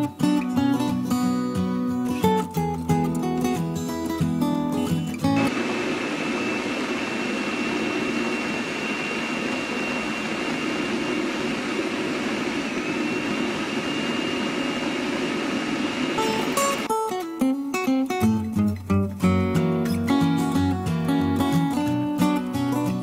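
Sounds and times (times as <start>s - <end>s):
food chopper motor whining: 5.4s - 16.9s.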